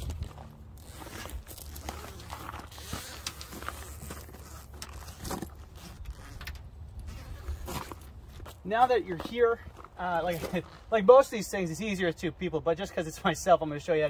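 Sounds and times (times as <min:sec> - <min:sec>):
zipper rasping: 0:00.0 - 0:08.1.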